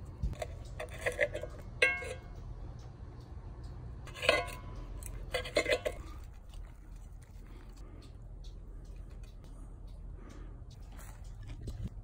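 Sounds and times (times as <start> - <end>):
low steady rumble: 0.0 - 12.0
knife and fork scraping skillet: 0.4 - 2.3, 4.1 - 6.3.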